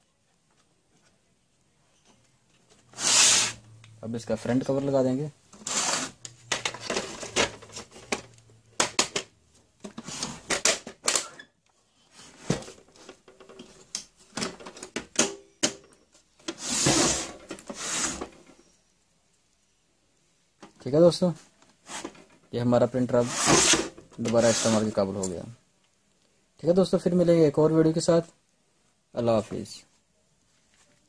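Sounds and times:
printer scraping on bench: 0:03.0 - 0:03.6, 0:05.6 - 0:06.2, 0:16.5 - 0:18.4, 0:23.2 - 0:24.9.

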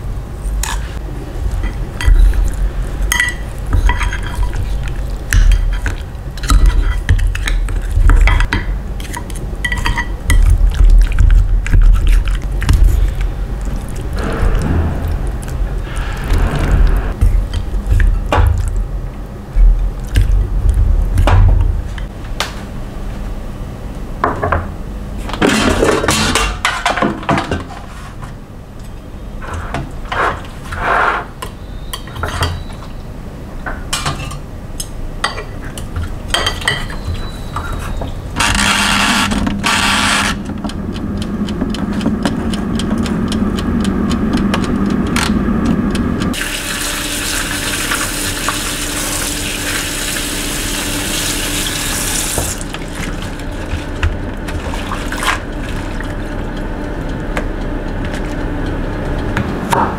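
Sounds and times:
steady hum: 0:00.0 - 0:26.6, 0:33.0 - 0:59.9
tap running water: 0:46.4 - 0:56.2.

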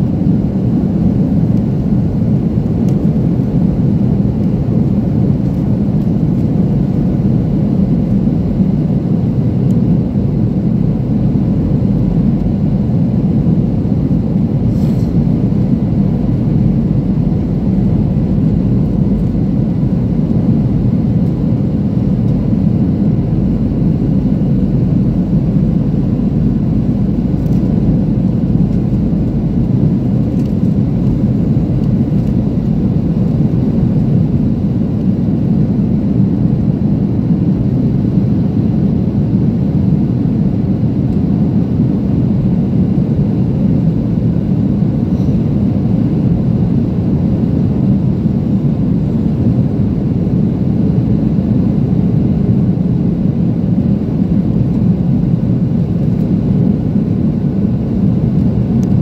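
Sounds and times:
faint steady hum: 0:00.0 - 0:59.0
jet engines and airflow roar: 0:00.0 - 0:59.0.

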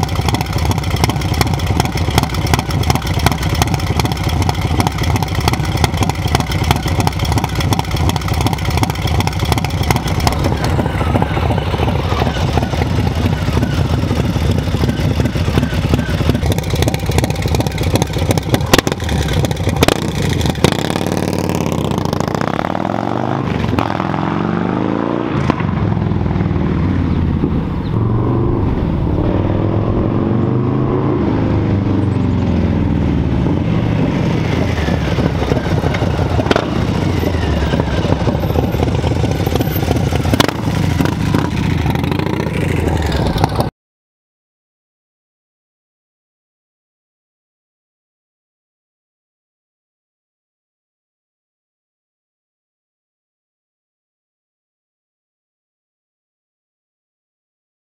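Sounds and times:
motorcycle engine idling: 0:00.0 - 0:22.4, 0:34.5 - 0:43.7
motorcycle accelerating through gears: 0:00.0 - 0:43.7.

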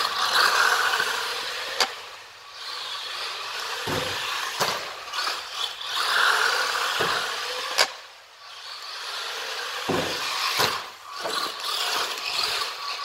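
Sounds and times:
electric motor whirring: 0:00.0 - 0:13.0
sharp knocks: 0:03.9 - 0:04.8, 0:09.9 - 0:10.8.

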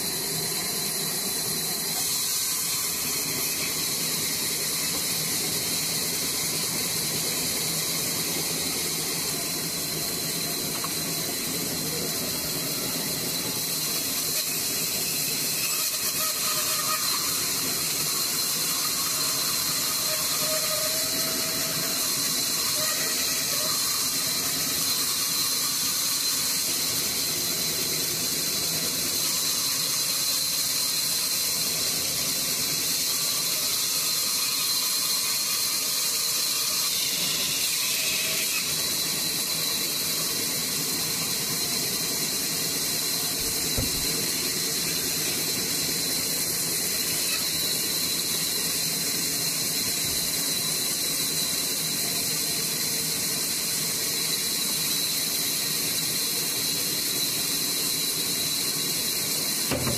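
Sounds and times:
band saw cutting log: 0:00.0 - 0:26.7, 0:34.2 - 0:50.3, 0:59.3 - 0:59.9.

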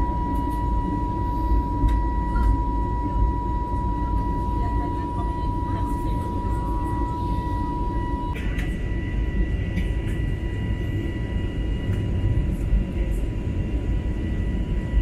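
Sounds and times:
high whining tones: 0:00.0 - 0:08.4
steady tone: 0:00.0 - 0:08.4
airplane cabin engine rumble: 0:00.0 - 0:15.0.

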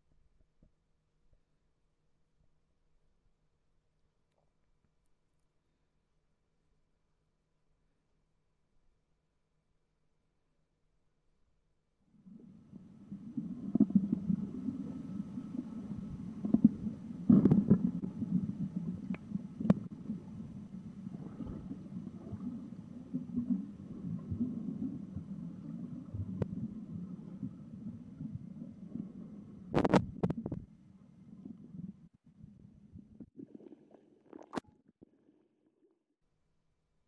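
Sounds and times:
muffled underwater rumbling: 0:12.2 - 0:35.9.

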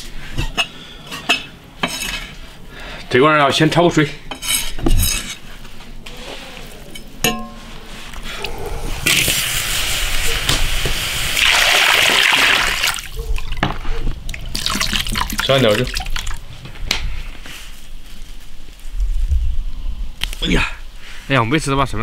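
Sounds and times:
water pouring into a wok: 0:11.3 - 0:13.1, 0:14.5 - 0:16.4.

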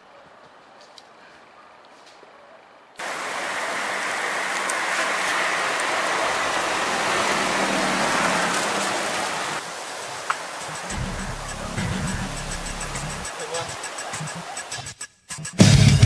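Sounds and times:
rushing wind and road noise: 0:02.8 - 0:14.8.

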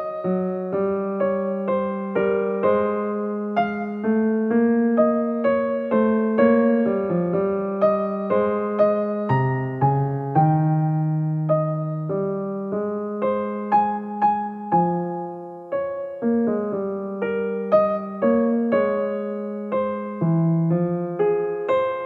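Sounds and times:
solo piano music: 0:00.0 - 0:22.0.

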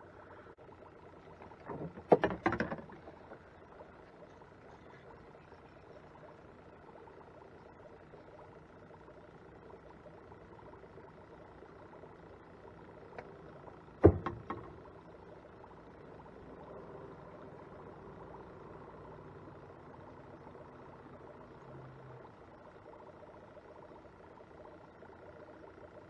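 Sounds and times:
faint low hum: 0:00.0 - 0:26.0
knock on kayak: 0:01.7 - 0:03.0, 0:14.0 - 0:14.8.

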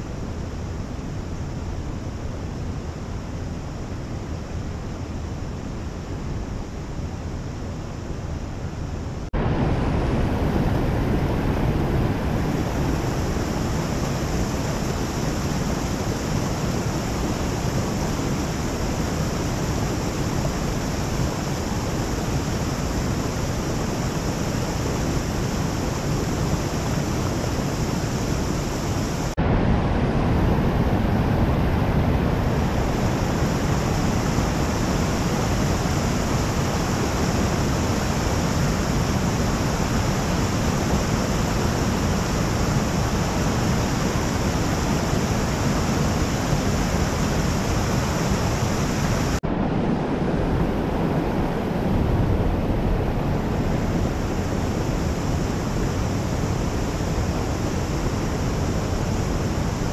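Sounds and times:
water rushing: 0:09.3 - 0:59.9.

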